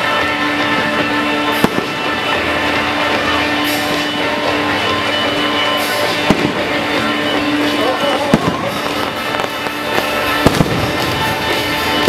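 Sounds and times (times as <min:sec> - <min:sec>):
guitar-led music: 0:00.0 - 0:12.0.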